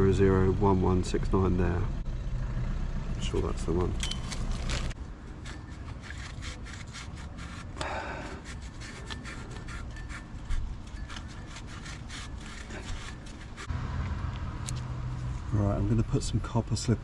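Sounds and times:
towel scrubbing metal: 0:05.2 - 0:13.7.

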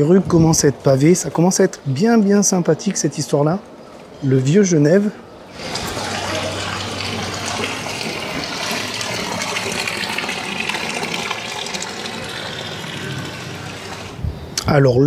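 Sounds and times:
fountain water splashing into basin: 0:05.5 - 0:14.2.

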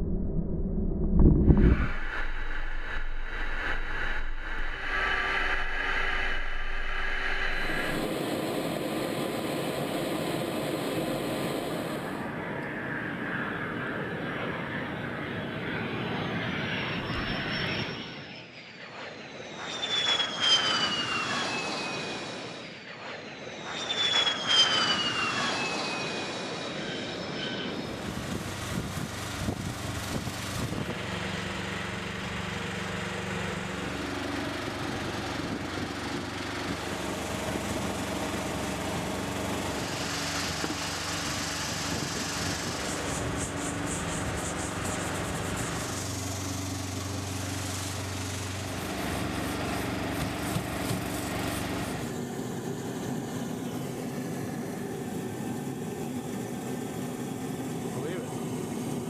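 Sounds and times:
low engine hum: 0:00.0 - 0:09.2, 0:28.0 - 0:59.0
jet engine whine: 0:00.0 - 0:59.0.

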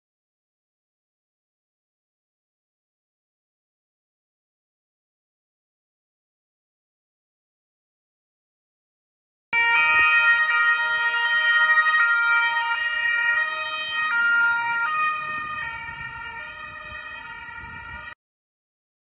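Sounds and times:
police siren: 0:09.6 - 0:18.2.

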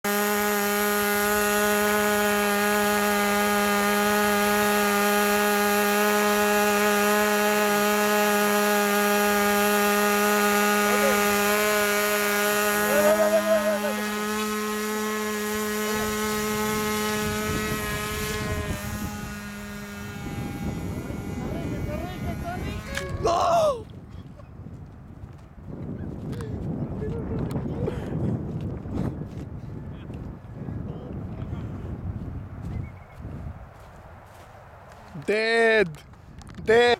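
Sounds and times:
model airplane engine running: 0:00.0 - 0:23.4.

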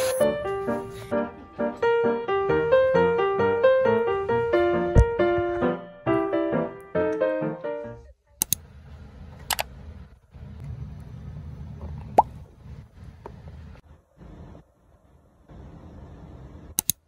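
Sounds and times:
high squeak: 0:00.0 - 0:01.0
piano melody: 0:00.0 - 0:08.0
sharp clicks: 0:08.4 - 0:08.6, 0:16.8 - 0:17.0.

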